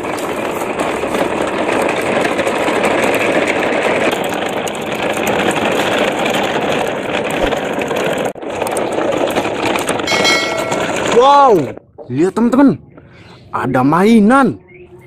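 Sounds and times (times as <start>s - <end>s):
toy truck wheels rolling on concrete: 0.0s - 11.8s.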